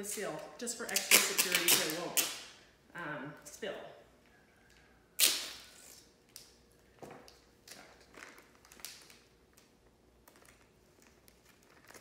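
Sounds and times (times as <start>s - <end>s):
tape and plastic bag handled: 0.8s - 2.4s, 7.2s - 12.0s
duct tape ripped off roll: 0.9s - 2.5s, 5.2s - 6.6s.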